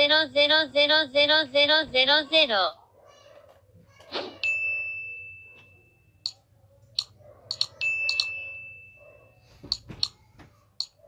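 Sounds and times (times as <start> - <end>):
computer mouse clicks: 6.9 - 8.2.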